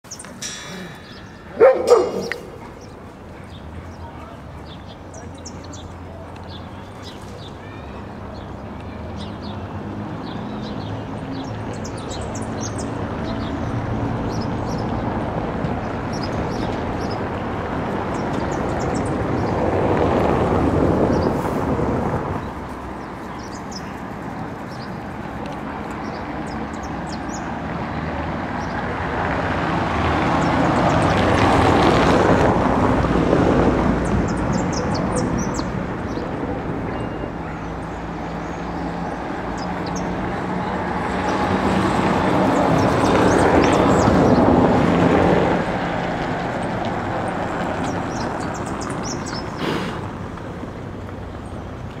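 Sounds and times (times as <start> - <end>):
engine passing by: 9.0 - 36.9, 37.8 - 51.9.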